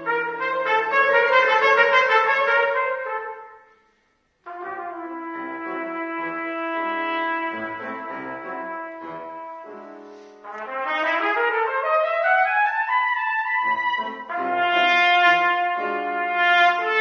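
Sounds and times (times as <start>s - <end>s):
solo trumpet melody: 0.0s - 17.0s.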